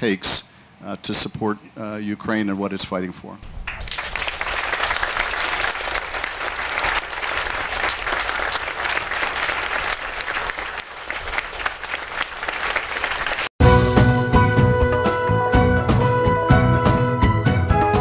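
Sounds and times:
audience applauding: 3.6s - 13.5s.

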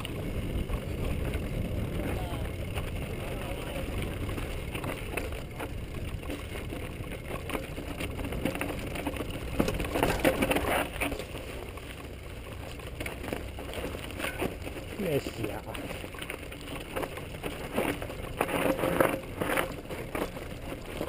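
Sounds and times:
bike rattling over rocks: 0.0s - 21.0s
bike tyres crunching over stones: 0.0s - 21.0s
steady low rumble: 0.0s - 21.0s.

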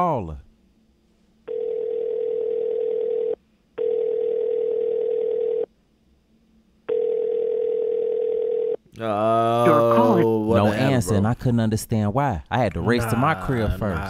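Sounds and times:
telephone ringback tone: 1.5s - 5.7s, 6.9s - 8.8s.

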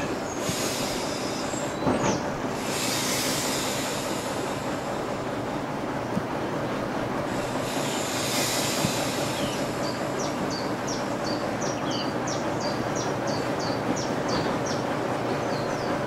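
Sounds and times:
diesel locomotive engine running: 0.0s - 16.0s
short hiss: 0.4s - 1.8s, 2.5s - 5.0s, 7.6s - 9.9s.

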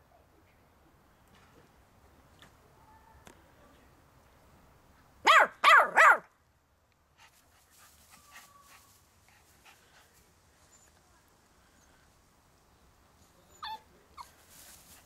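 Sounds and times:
puppy yapping: 5.2s - 6.2s.

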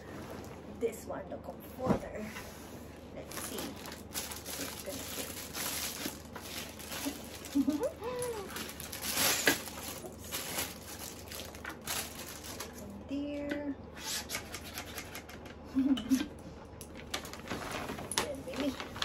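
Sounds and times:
plastic wrapping crinkling: 3.2s - 13.0s, 16.9s - 19.0s.

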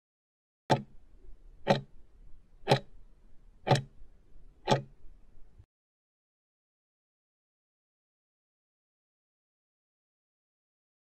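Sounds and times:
countdown timer ticks: 0.7s - 0.9s, 1.6s - 1.9s, 2.7s - 2.9s, 3.7s - 4.0s, 4.6s - 5.0s.

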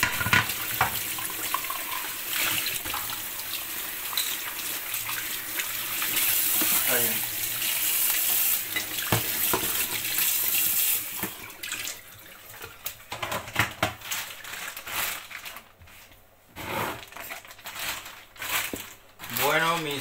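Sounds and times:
items clicking on kitchen counter: 0.0s - 2.1s, 12.9s - 15.9s.

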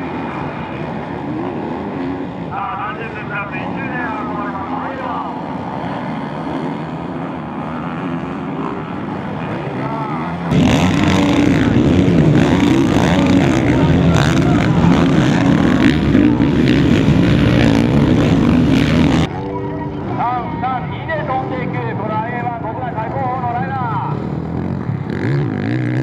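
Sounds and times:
motocross bike engines revving: 0.0s - 26.0s.

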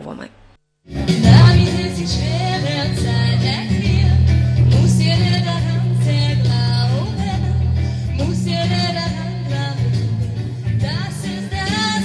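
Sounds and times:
instrumental accompaniment: 1.1s - 2.7s
people singing into microphones: 1.1s - 3.8s
steady low bass notes: 1.2s - 2.6s.

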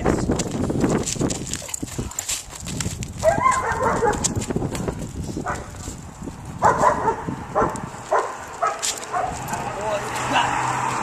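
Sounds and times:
dog barking: 3.2s - 4.4s, 5.4s - 5.7s, 6.6s - 9.4s.

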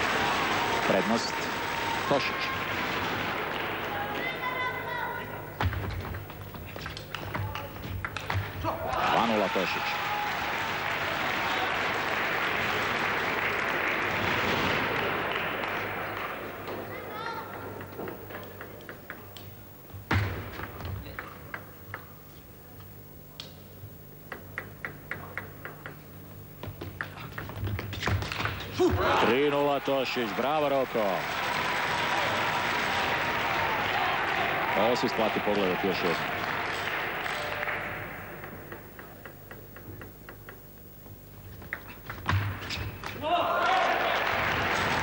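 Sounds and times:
applause: 0.0s - 5.4s, 6.9s - 17.0s, 29.4s - 38.9s, 43.6s - 45.0s
table tennis ball bouncing: 24.3s - 28.7s, 38.4s - 40.7s.

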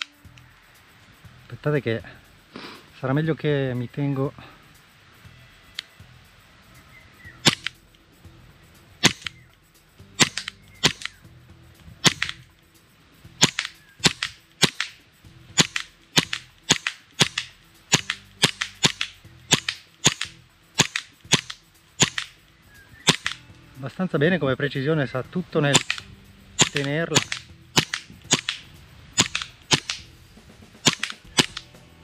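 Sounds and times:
airsoft pistol shots: 7.4s - 7.8s, 9.0s - 9.3s, 10.2s - 11.2s, 12.0s - 12.4s, 13.4s - 15.0s, 15.6s - 22.3s, 23.0s - 23.4s, 25.7s - 26.0s, 26.6s - 28.6s, 29.2s - 30.1s, 30.8s - 31.7s
slide blowback clack: 7.4s - 7.9s, 9.0s - 9.5s, 10.2s - 11.2s, 12.0s - 12.6s, 13.4s - 22.4s, 23.0s - 23.5s, 25.7s - 31.8s.

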